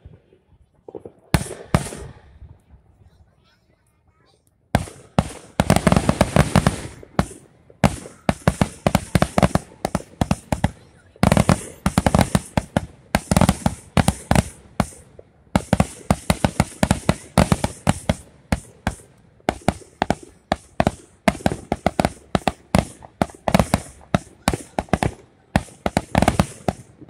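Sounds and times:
fireworks bursting with bangs and crackles: 0.0 - 27.0.

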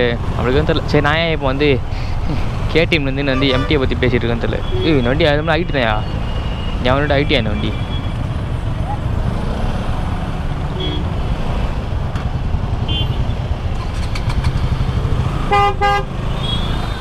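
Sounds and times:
motorcycle engine rumbling: 0.0 - 15.4
vehicle horn toots: 3.3 - 4.0, 12.9 - 13.3, 15.5 - 16.9.

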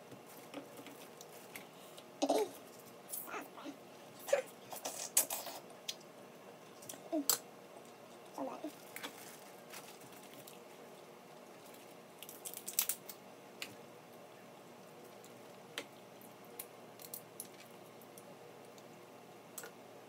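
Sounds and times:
crab shells cracking: 11.6 - 13.8, 16.5 - 18.9.

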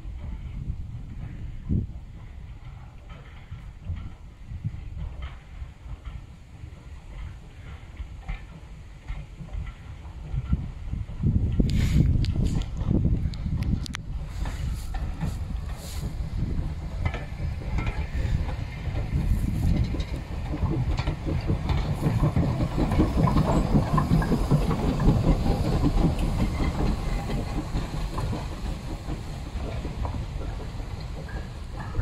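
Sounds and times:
train rumble: 0.0 - 32.0
wheels clattering over rail joints: 2.2 - 32.0
steam hissing: 14.1 - 32.0.

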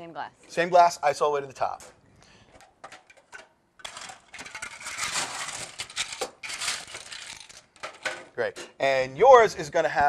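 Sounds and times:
ice cubes clattering into a glass: 3.8 - 8.0.

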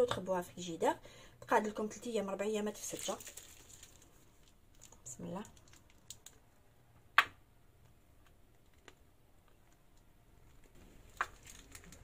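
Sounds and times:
piping bag handling noise: 2.8 - 6.5, 10.4 - 12.0.

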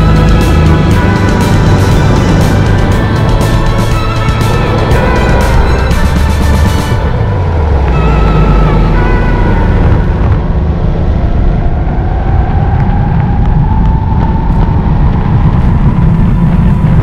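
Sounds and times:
go-kart engine accelerating: 0.0 - 17.0
heavy low rumble: 0.0 - 17.0.

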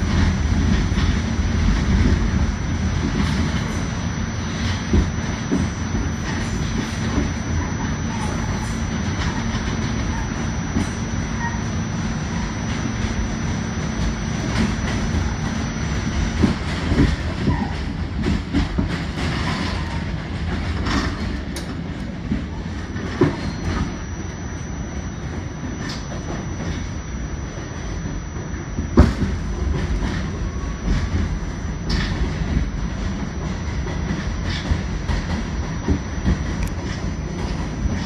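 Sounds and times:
train hum: 0.0 - 38.0
train wheels rumbling on rail: 0.0 - 38.0.

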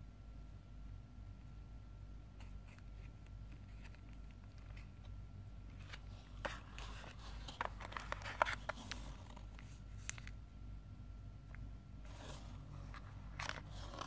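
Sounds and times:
plastic and cardboard crinkling: 2.4 - 10.4, 12.0 - 14.0.

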